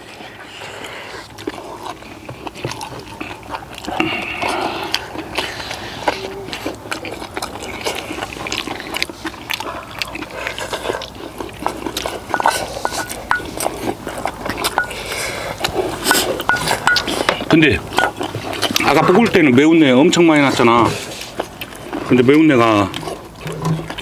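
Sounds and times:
chewing and slurping: 0.0 - 24.0
metal spoons clicking on bowls: 12.3 - 13.5, 14.7 - 15.0, 16.1 - 17.4.

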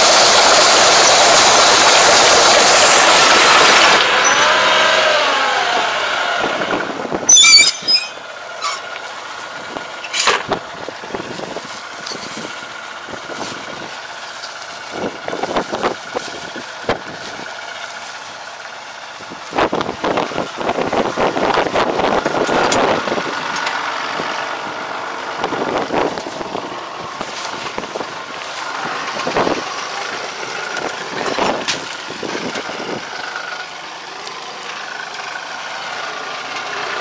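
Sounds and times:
tractor idling: 0.0 - 37.0
brief squeal: 4.2 - 4.8, 7.3 - 8.9
rustling of plastic film: 11.2 - 18.5.

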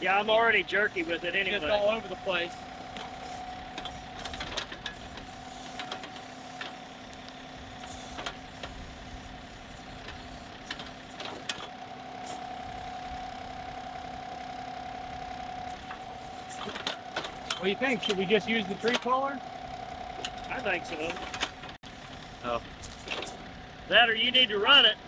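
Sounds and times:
steady whine: 0.0 - 25.0
tractor diesel engine running: 0.0 - 25.0.

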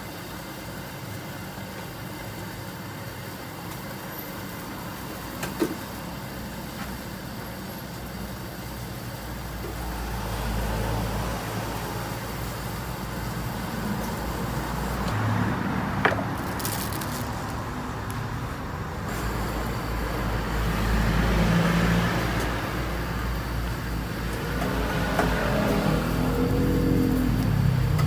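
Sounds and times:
road traffic noise: 0.0 - 28.0
vehicle passing rumble: 8.9 - 28.0.

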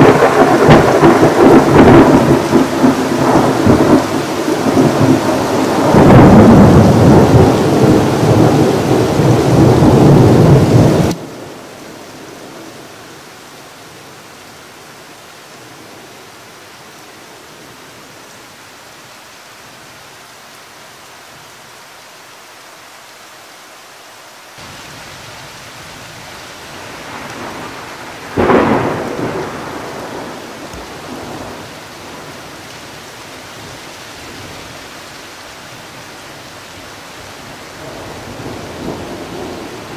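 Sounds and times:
sharp thunderclap: 0.0 - 11.2, 27.1 - 31.6
thunder rumbling: 0.0 - 11.6, 24.6 - 32.6, 37.7 - 39.9
steady rain hiss: 0.0 - 39.9.

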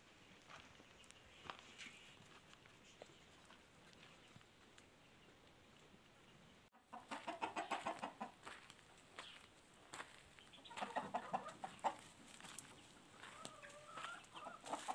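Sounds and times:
chickens clucking: 5.0 - 9.4, 10.4 - 14.9
chicken drawn-out call: 6.8 - 8.4, 10.6 - 12.1, 13.2 - 14.9.

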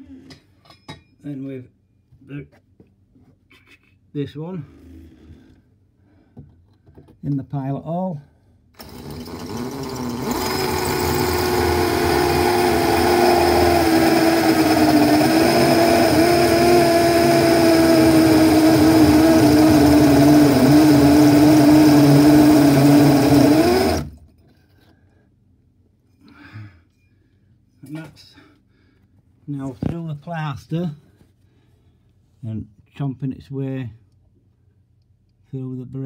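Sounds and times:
electric drill cutting brick: 8.8 - 24.2.

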